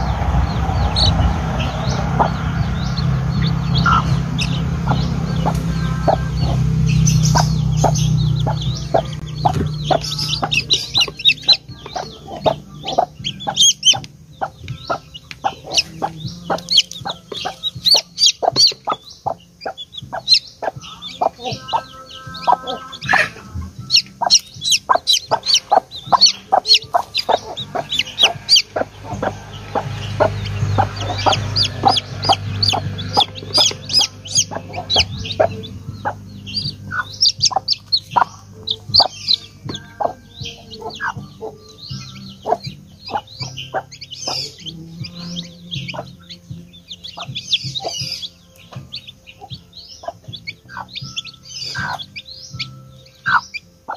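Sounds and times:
chicks peeping: 0:00.0 - 0:53.9
hen clucking: 0:00.0 - 0:53.9.

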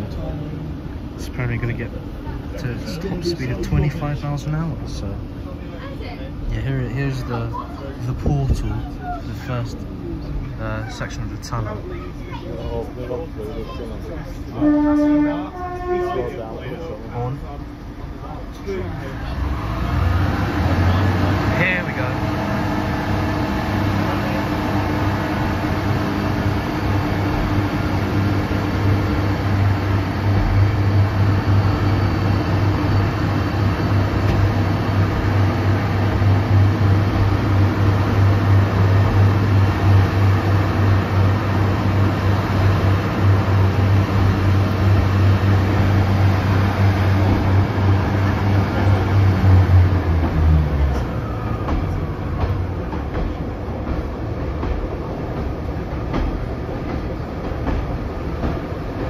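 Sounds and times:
train wheels running noise: 0:12.7 - 0:59.0
diesel engine droning: 0:18.8 - 0:52.8.

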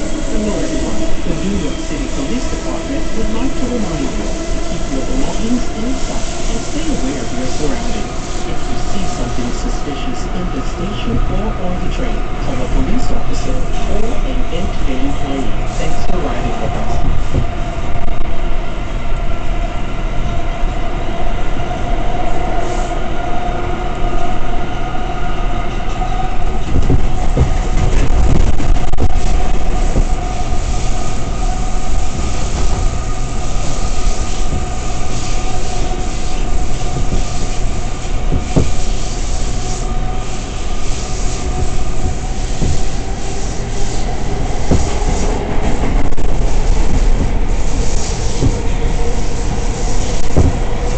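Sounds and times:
subway car whine: 0:00.0 - 0:50.9
wheels rumbling on rail: 0:00.0 - 0:50.9
track knocks: 0:16.0 - 0:18.3, 0:25.7 - 0:50.9.

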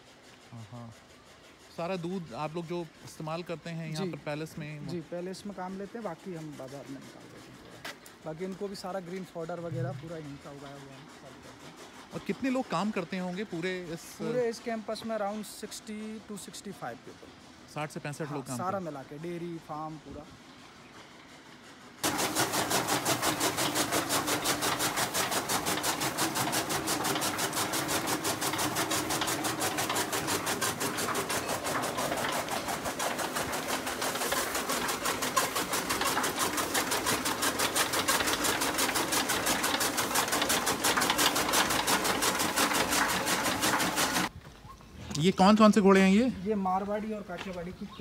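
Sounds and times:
chaff cutter chopping: 0:22.0 - 0:44.3.

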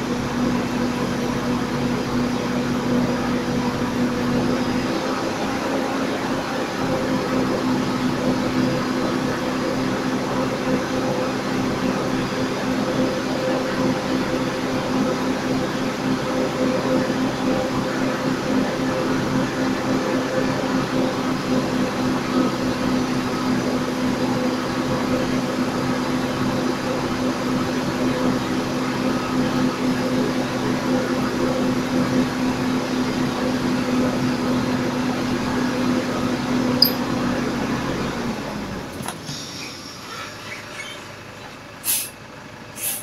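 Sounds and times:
bus idling: 0:00.0 - 0:27.2
single click: 0:36.8 - 0:37.0.

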